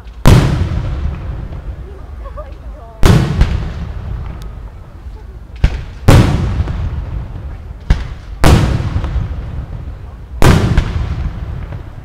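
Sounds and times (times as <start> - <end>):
firework boom with rumble: 0.2 - 1.9, 3.0 - 4.4, 5.6 - 12.0.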